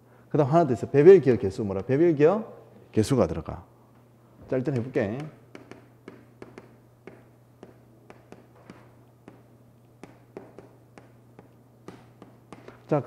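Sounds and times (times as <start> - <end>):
low steady hum: 0.0 - 13.0
chalk tapping on chalkboard: 4.8 - 13.0.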